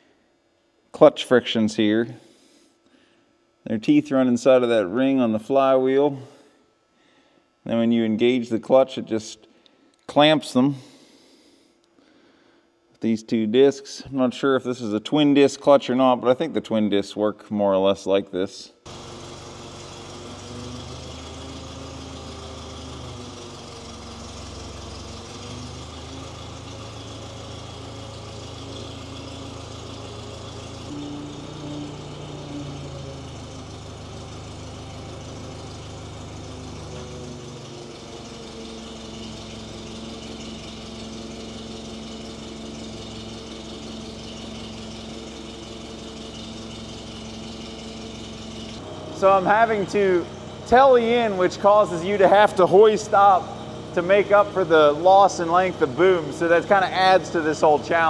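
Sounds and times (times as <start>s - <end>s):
truck engine running: 18.9s - 58.0s.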